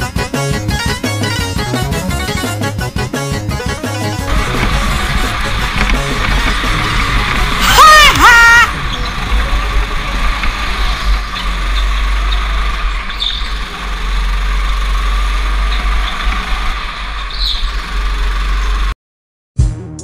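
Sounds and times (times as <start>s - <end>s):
go-kart engine drone: 0.0s - 19.0s
wind rumble: 2.0s - 18.9s
tyres squealing: 4.1s - 18.1s.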